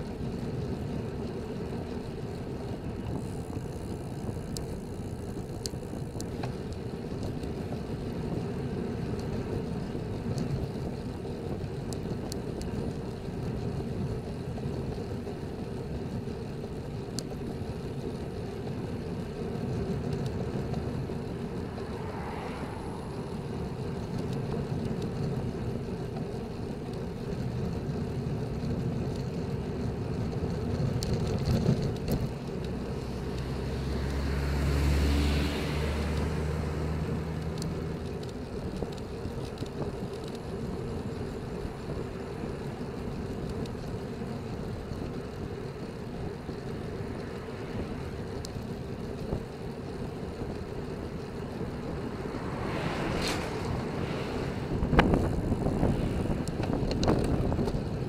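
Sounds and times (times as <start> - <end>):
bicycle tyre hum: 0.0 - 58.0
motor vehicle passing: 18.4 - 26.9, 29.4 - 58.0
wind buffeting microphone: 45.8 - 58.0.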